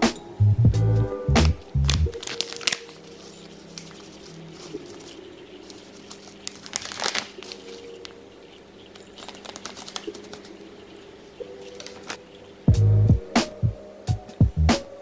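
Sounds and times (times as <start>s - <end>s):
flour bag crinkling: 1.4s - 10.9s, 11.6s - 12.3s.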